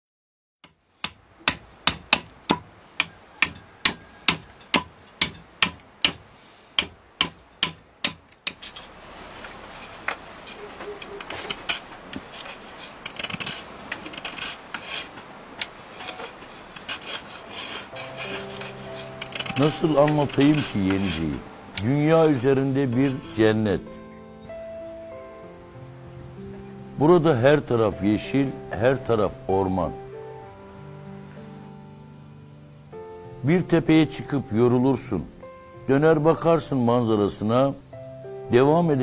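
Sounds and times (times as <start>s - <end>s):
wood scraping and rasping: 3.0s - 23.9s.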